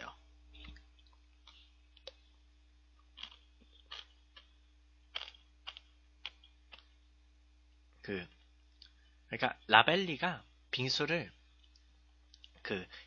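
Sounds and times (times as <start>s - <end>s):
person chewing ice: 3.0s - 4.5s, 5.1s - 6.9s.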